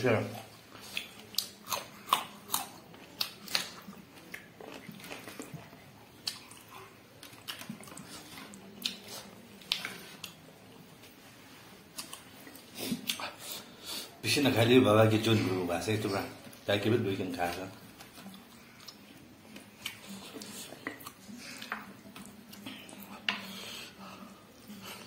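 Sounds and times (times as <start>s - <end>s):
person chewing food: 0.3s - 14.2s, 17.8s - 25.0s
sharp mouth clicks and smacks: 0.9s - 3.8s.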